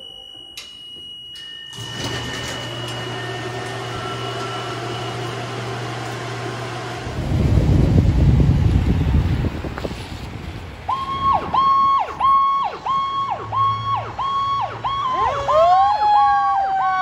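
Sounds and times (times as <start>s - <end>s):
low mechanical hum: 0.0s - 11.6s
rough low rumble: 7.0s - 10.8s.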